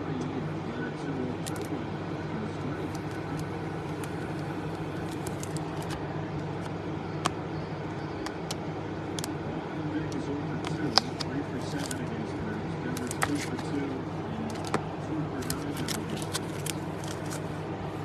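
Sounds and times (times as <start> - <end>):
cards and wrappers clicking: 1.4 - 1.7, 2.8 - 7.4, 10.8 - 12.1, 12.9 - 13.8, 14.4 - 17.5.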